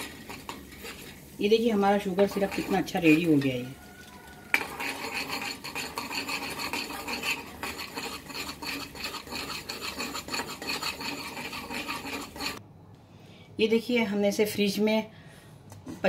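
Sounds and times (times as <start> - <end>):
spoon scraping metal pan: 0.0 - 12.6.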